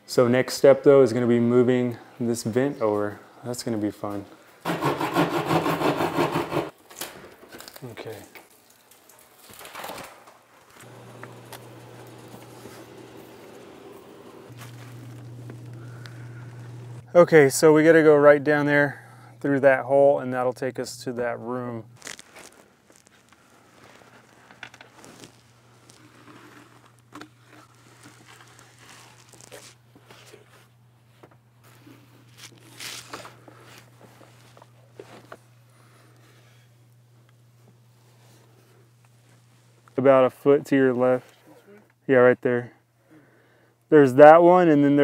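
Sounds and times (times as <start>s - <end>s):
insulation rustling and crunching: 7.4s - 17.0s, 22.0s - 36.0s
steady low hum: 10.8s - 22.0s.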